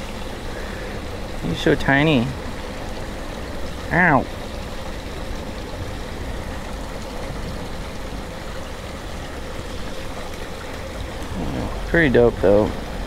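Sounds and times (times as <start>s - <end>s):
faint steady hum: 0.0s - 13.0s
water rushing in a drain: 0.0s - 13.0s
low rumble: 11.2s - 13.0s.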